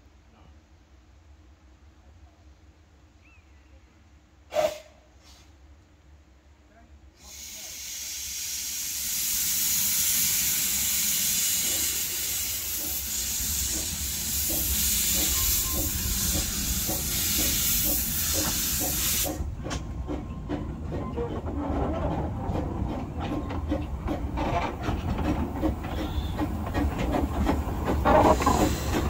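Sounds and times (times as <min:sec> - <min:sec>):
loud steady steam hiss: 0:04.4 - 0:05.7, 0:07.0 - 0:19.5, 0:25.6 - 0:29.0
steam locomotive exhaust beats: 0:07.2 - 0:29.0
wheels clicking on track: 0:11.6 - 0:29.0.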